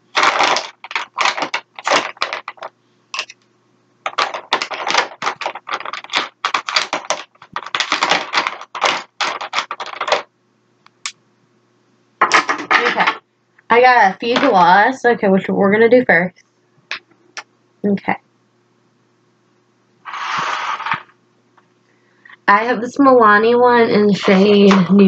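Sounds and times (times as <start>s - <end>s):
plastic tubes clattering: 0.0s - 3.4s, 4.0s - 10.3s, 20.1s - 21.1s.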